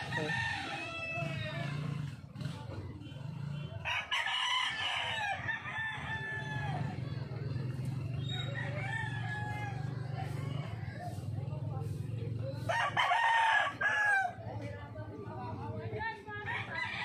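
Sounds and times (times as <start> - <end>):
roosters crowing: 0.0 - 2.4, 3.7 - 11.4, 12.6 - 14.5, 16.4 - 17.0.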